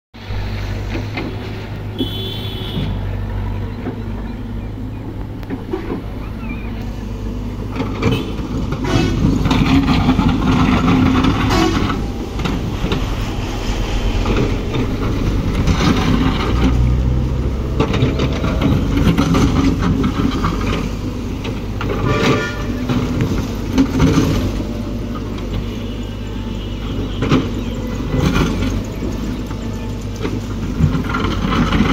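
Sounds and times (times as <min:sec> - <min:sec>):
excavator diesel engine: 0:00.2 - 0:31.9
bucket scraping in soil: 0:08.8 - 0:21.0.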